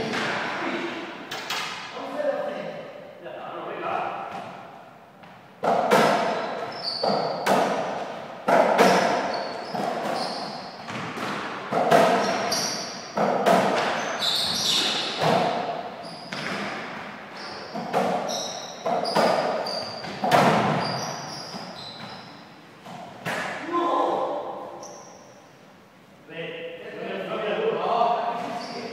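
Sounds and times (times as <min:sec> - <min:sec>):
ball knocking off racquets and walls: 0:05.2 - 0:15.7, 0:17.7 - 0:21.6
shoes squeaking on court floor: 0:06.1 - 0:23.3, 0:24.8 - 0:25.5, 0:28.4 - 0:28.9.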